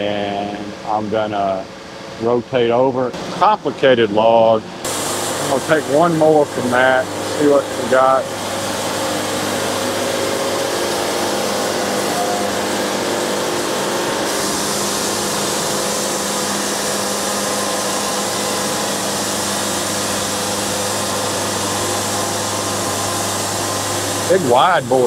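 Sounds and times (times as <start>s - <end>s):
sawmill diesel engine running: 2.2s - 25.0s
band blade cutting wood hiss: 10.2s - 24.4s.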